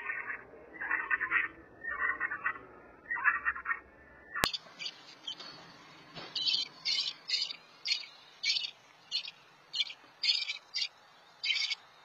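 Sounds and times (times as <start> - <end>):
robin chirping: 4.4 - 12.0.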